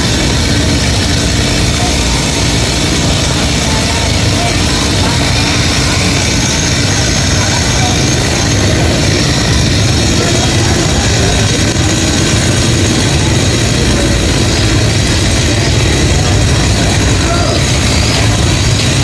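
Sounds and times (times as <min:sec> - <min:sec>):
chainsaw running: 0:00.0 - 0:19.0.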